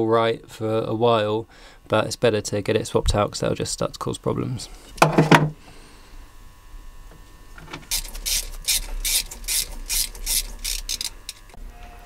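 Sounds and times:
socket ratchet clicking: 0:07.9 - 0:11.5.

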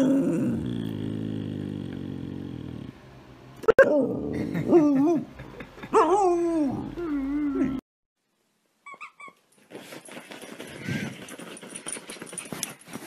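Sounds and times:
puppy whining and howling: 0:06.0 - 0:07.8
puppy high squeaks: 0:08.8 - 0:09.4.

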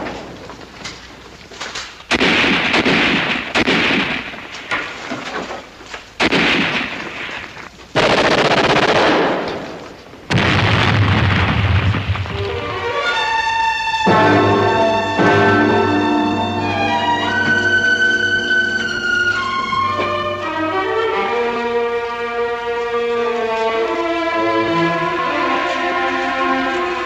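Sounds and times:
loud blasts with rumbling tail: 0:02.1 - 0:04.5, 0:06.2 - 0:12.8
sharp gunshots: 0:02.1 - 0:05.0, 0:06.2 - 0:12.6
orchestral music: 0:12.3 - 0:27.0.

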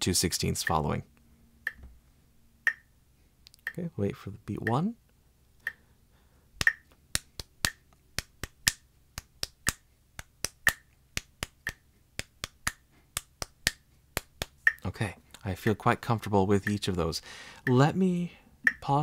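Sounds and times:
metronome clicking: 0:00.6 - 0:00.8, 0:02.6 - 0:02.9, 0:04.6 - 0:04.8, 0:06.6 - 0:14.9, 0:16.6 - 0:16.9, 0:17.6 - 0:17.9, 0:18.6 - 0:18.9
hand claps: 0:06.6 - 0:14.6.

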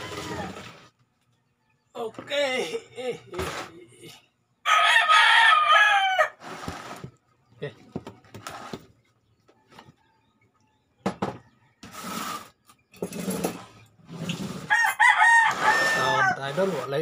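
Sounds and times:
rooster crowing: 0:04.6 - 0:06.4, 0:14.7 - 0:16.8.

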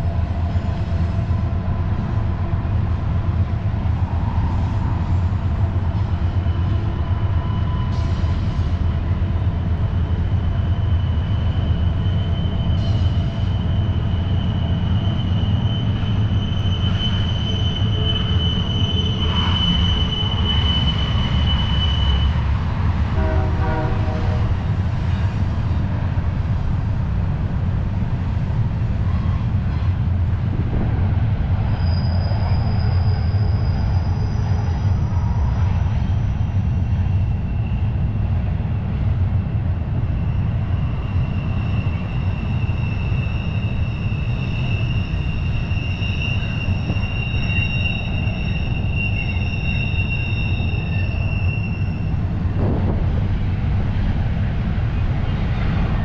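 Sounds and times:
train wheels rumbling on rails: 0:00.0 - 0:56.0
high-pitched wheel squeal: 0:10.0 - 0:22.6, 0:31.6 - 0:38.0, 0:40.1 - 0:52.3.

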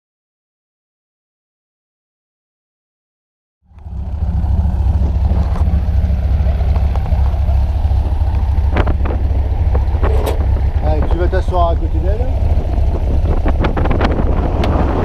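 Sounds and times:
propeller plane engine idling: 0:03.7 - 0:15.0.

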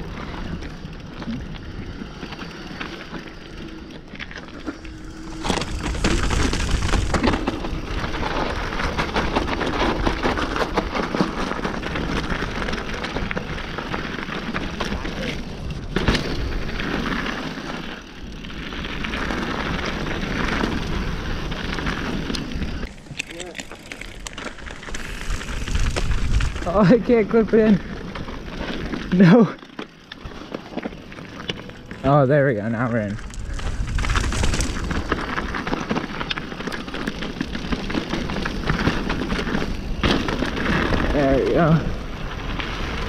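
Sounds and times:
bike tyres rolling over gravel: 0:00.0 - 0:43.0
wind buffeting microphone: 0:04.6 - 0:13.9, 0:18.3 - 0:29.2, 0:32.5 - 0:43.0
wind on microphone: 0:24.5 - 0:26.9, 0:33.2 - 0:35.6.

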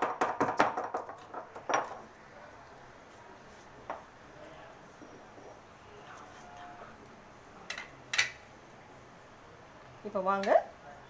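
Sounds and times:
stone roller knocking on slab: 0:00.0 - 0:02.0.

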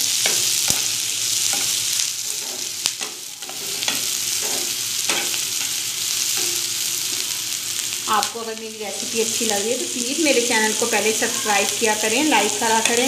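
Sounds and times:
spatula scraping pan: 0:00.0 - 0:06.9
onions sizzling in oil: 0:00.0 - 0:13.0.

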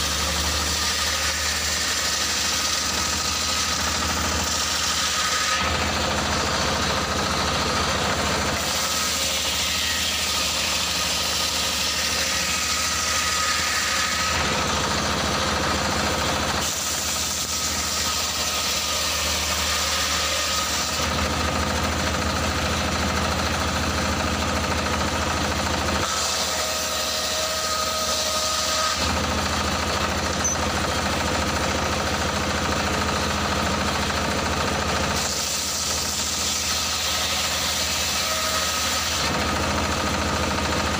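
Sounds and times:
circular saw cutting logs: 0:00.0 - 0:40.9
stationary engine drone: 0:05.6 - 0:08.8, 0:29.0 - 0:36.6.

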